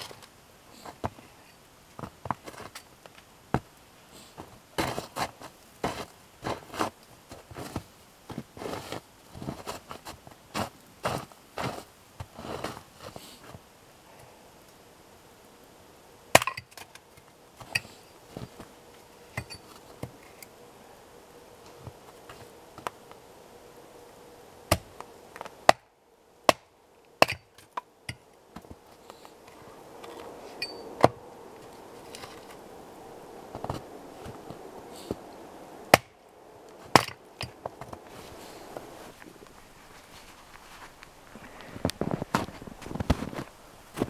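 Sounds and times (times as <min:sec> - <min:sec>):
axe chopping wood: 0:16.4 - 0:16.7, 0:25.6 - 0:25.8.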